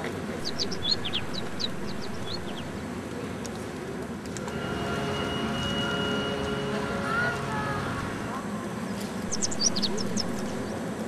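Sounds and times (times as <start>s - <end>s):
steady low rumble: 0.1s - 3.3s, 4.3s - 11.0s
small birds chirping: 0.3s - 2.8s, 8.8s - 10.9s.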